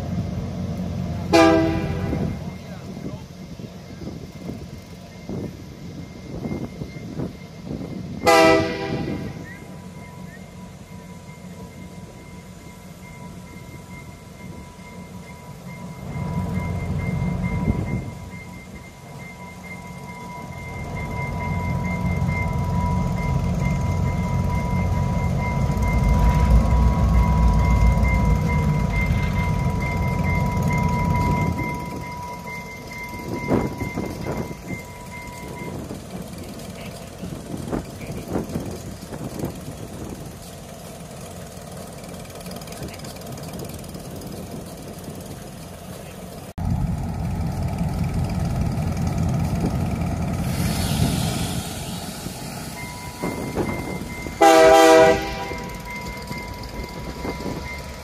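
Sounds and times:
diesel locomotives rumbling: 0.0 - 58.0
train clanks: 0.0 - 58.0
high ringing tone: 1.4 - 36.4, 52.2 - 58.0.

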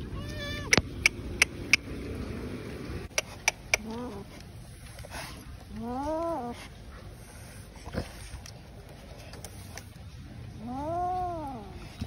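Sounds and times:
wet kitten meowing: 0.0 - 0.8, 10.6 - 11.8.

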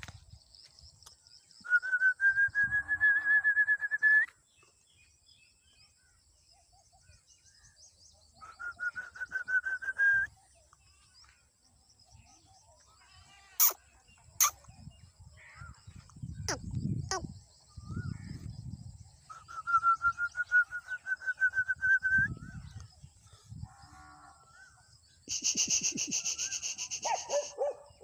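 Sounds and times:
faint high chirping: 0.4 - 28.0
bird trilling: 25.3 - 27.7.

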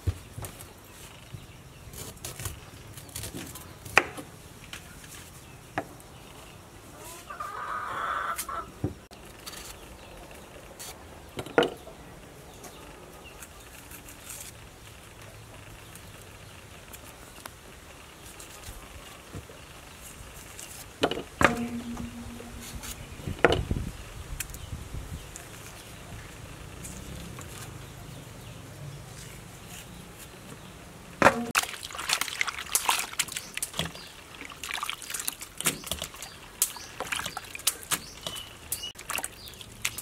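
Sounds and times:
chickens clucking: 6.9 - 8.8
loud chicken call: 7.0 - 8.7
bananas snapping and clicking: 35.0 - 39.0.

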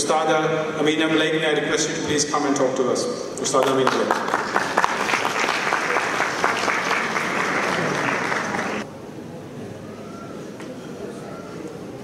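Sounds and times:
audience applauding: 3.5 - 8.8.

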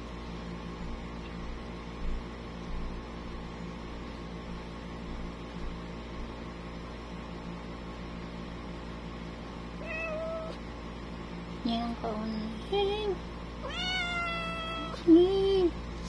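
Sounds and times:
steady low hum: 0.0 - 16.0
cat meowing: 9.8 - 10.6, 13.6 - 15.0.

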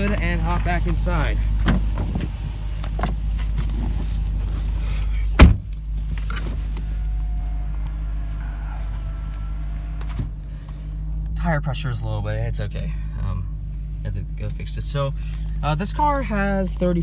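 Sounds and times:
car engine idling: 0.0 - 17.0
car door slamming: 1.6 - 3.2, 5.3 - 10.5.

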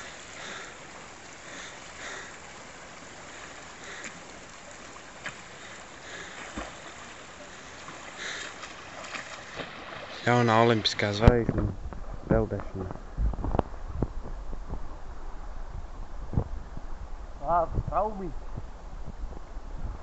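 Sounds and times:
river water rushing: 0.0 - 11.3
swimmer splashing: 0.0 - 11.3.

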